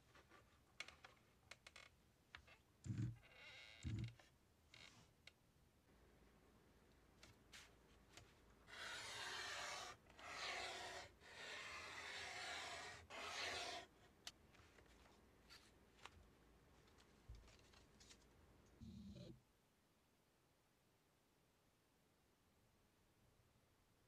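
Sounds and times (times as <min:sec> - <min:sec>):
craft knife scratching through sheet: 0:08.7 - 0:13.9.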